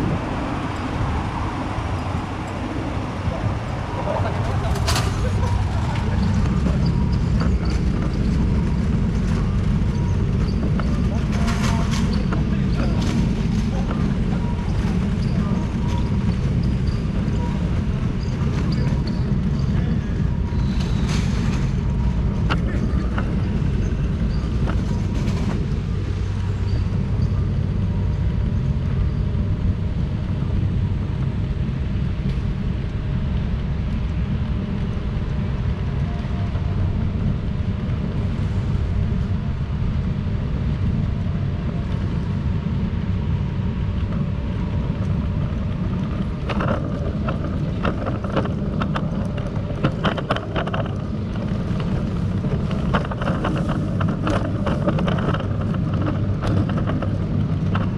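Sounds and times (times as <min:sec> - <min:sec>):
faint street ambience: 0:00.0 - 0:57.9
wind buffeting microphone: 0:00.0 - 0:57.9
sharp clicks and knocks: 0:45.0 - 0:57.9.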